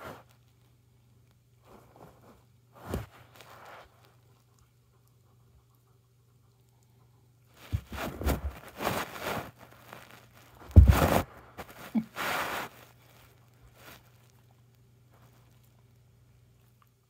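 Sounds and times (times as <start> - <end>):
heavy thump: 10.6 - 11.3.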